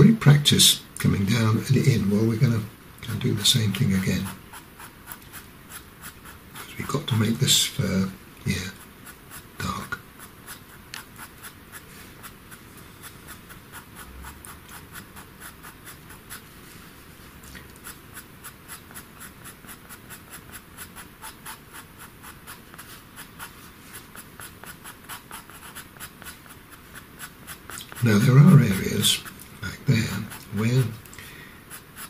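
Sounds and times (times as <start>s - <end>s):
pencil scratching on paper: 3.1s - 31.0s, 31.6s - 32.0s.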